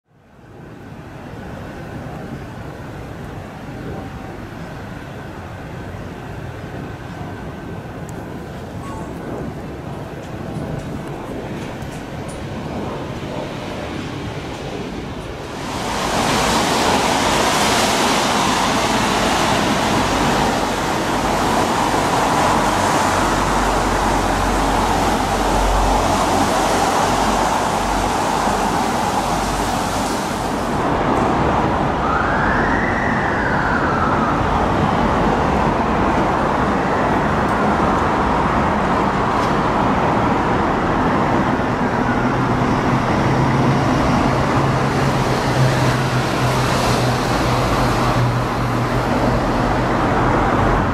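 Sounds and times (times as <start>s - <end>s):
city traffic noise: 0.0s - 50.9s
siren wailing: 32.0s - 34.8s.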